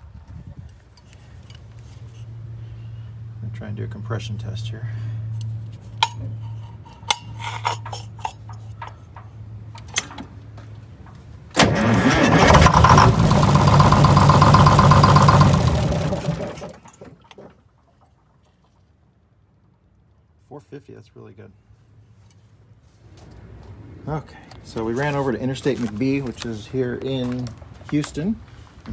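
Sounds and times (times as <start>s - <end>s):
diesel engine cranking: 7.8s - 18.2s.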